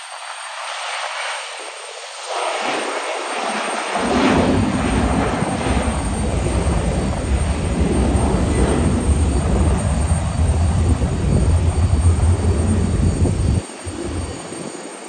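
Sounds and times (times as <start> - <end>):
distant jet engines roaring: 0.0 - 15.0.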